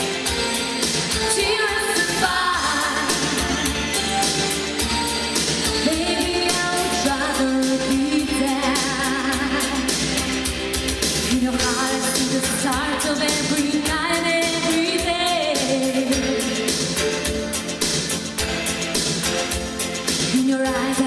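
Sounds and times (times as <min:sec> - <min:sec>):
woman singing pop song: 0:00.0 - 0:17.8, 0:20.0 - 0:21.0
backing track with steady beat: 0:00.0 - 0:21.0.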